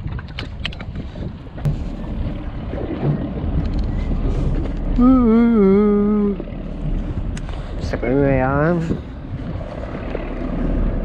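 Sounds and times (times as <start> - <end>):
rumble of wind and water: 0.0 - 11.0
person wavering vocal sound: 5.0 - 6.4.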